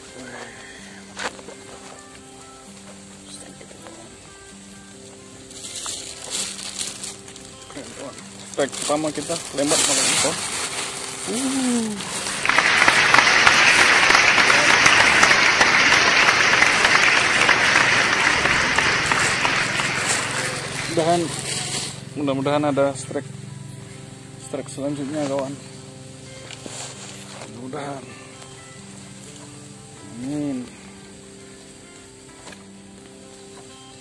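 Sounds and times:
music of sustained notes: 0.0s - 34.0s
heavy rain falling: 9.8s - 21.9s.

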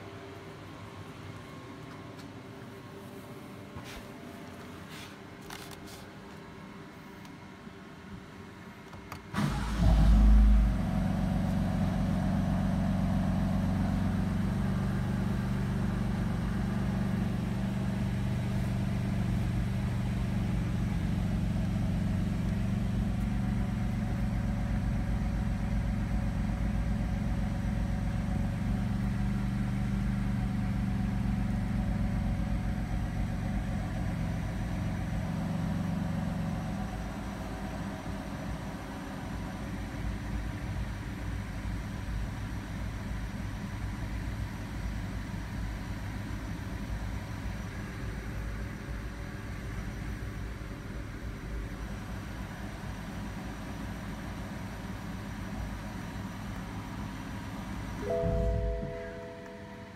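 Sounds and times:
engine rev flare: 9.4s - 15.2s
car engine idling: 9.4s - 59.9s.

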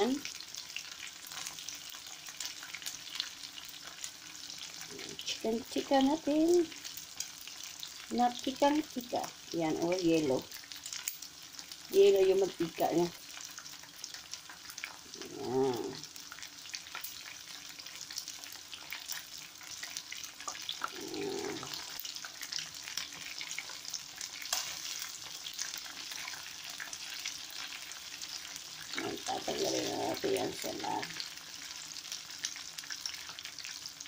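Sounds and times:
chicken wings frying in oil: 0.0s - 34.0s.

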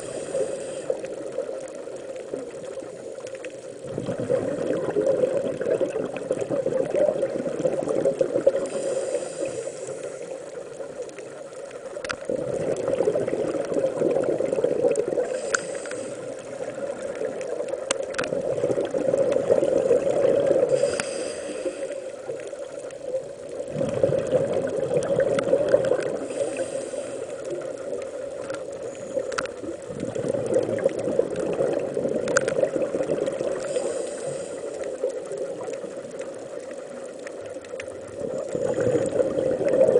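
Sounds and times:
short high hisses: 20.7s - 22.1s.

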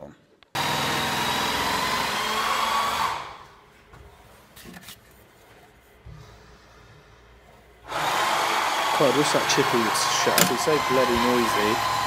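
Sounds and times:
power tool motor whine: 0.6s - 3.5s, 7.9s - 12.0s.

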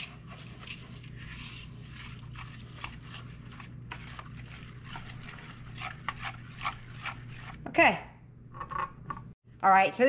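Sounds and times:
whisk scraping and stirring in bowl: 0.0s - 7.8s.

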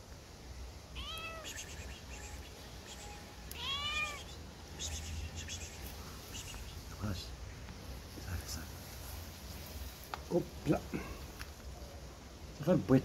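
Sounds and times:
young cat meowing in distress: 0.9s - 1.6s, 3.5s - 4.4s.

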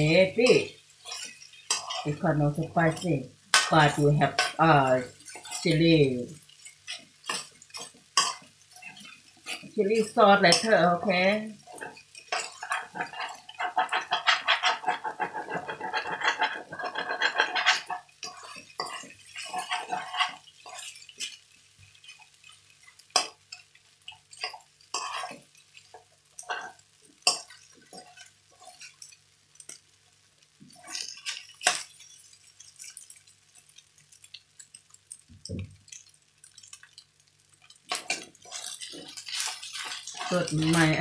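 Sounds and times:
metal spoon scraping wok: 0.4s - 21.4s, 24.3s - 25.6s, 37.9s - 41.0s.

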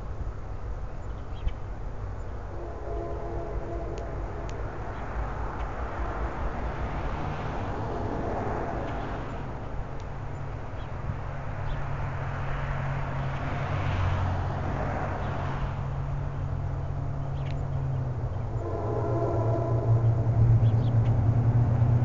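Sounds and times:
low mechanical hum: 0.0s - 13.5s
rushing noise: 2.3s - 17.2s, 18.1s - 22.0s.

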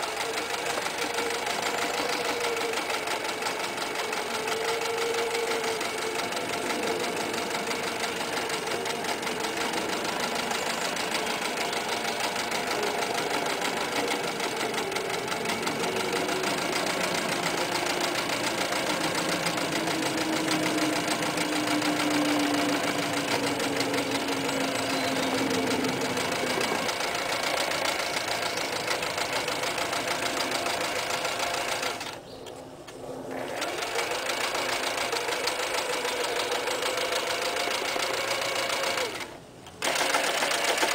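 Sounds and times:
electric sewing machine running: 0.0s - 32.2s, 33.3s - 40.9s.

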